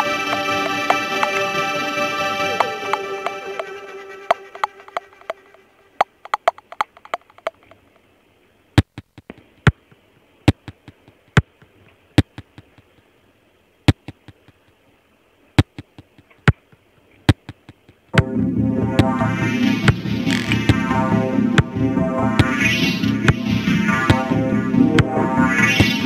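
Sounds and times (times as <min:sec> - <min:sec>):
faint hiss: 0:00.0 - 0:18.2
sharp clicks: 0:04.3 - 0:07.8, 0:08.8 - 0:13.0, 0:13.9 - 0:14.7.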